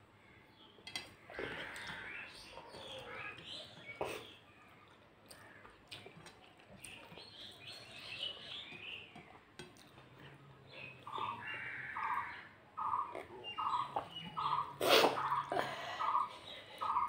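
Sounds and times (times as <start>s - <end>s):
chewing with mouth closed: 4.9s - 7.2s.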